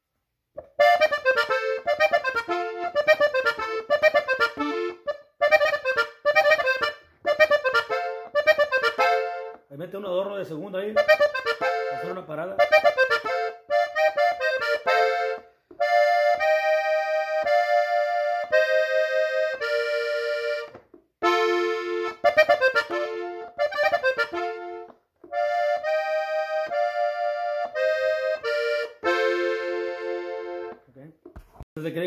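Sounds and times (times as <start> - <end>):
button accordion melody: 0.6 - 9.7, 10.7 - 30.9.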